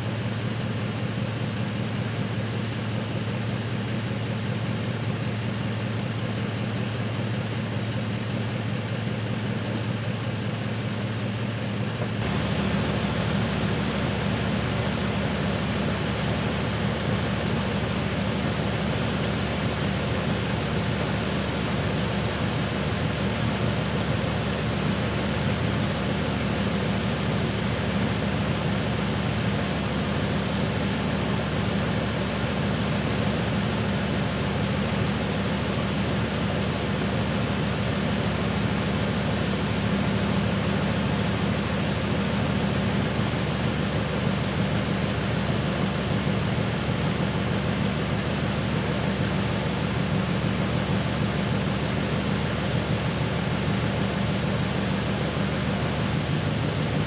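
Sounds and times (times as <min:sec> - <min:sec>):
truck engine idling: 0:00.0 - 0:57.0
steady rushing noise: 0:12.2 - 0:17.3.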